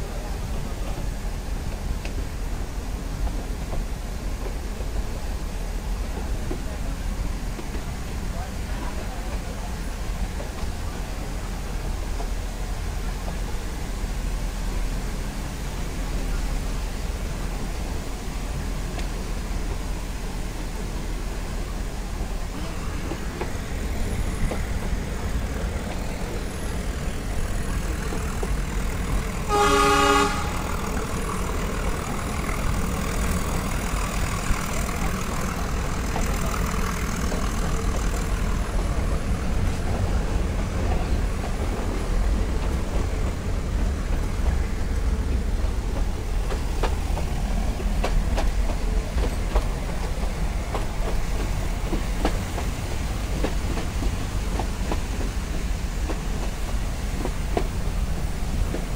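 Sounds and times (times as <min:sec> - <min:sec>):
train rumble and wind: 0:00.0 - 0:58.9
locomotive toot: 0:29.4 - 0:31.1.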